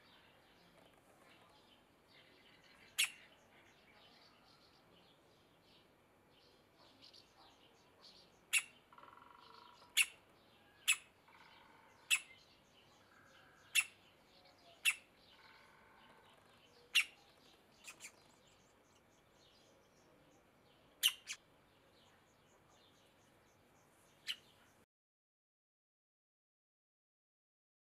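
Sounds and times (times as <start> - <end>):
woodpecker nestling calling: 2.9 - 3.2, 8.4 - 19.4, 21.0 - 21.4, 24.2 - 24.6
faint chirping: 6.5 - 24.8.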